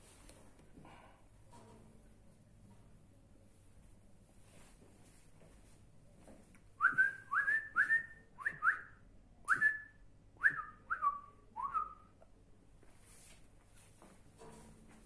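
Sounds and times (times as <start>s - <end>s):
person whistling chirps: 6.8s - 12.1s.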